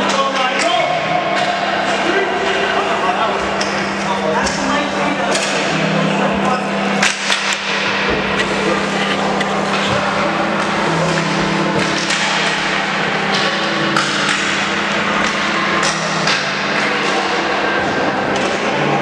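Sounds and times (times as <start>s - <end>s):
hockey sticks clacking on ball: 5.3s - 5.8s, 7.0s - 8.6s, 9.4s - 18.9s.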